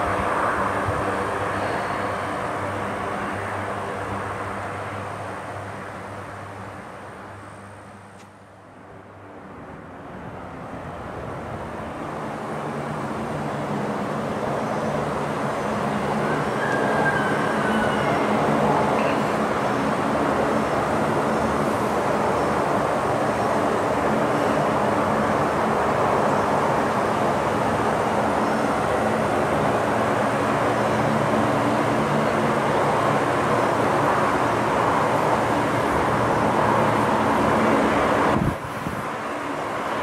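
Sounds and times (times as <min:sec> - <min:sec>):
aircraft engines roaring: 0:11.0 - 0:40.0.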